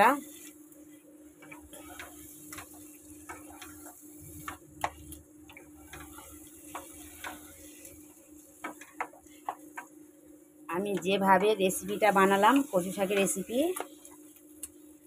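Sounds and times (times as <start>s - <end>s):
spatula scraping frying pan: 1.4s - 5.1s, 5.7s - 9.6s.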